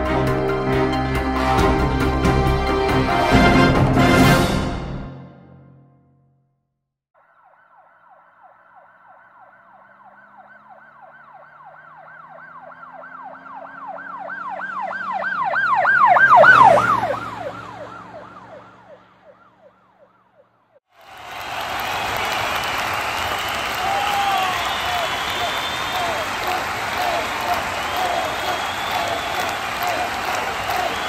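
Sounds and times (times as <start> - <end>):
emergency siren yelping: 7.2 - 20.8.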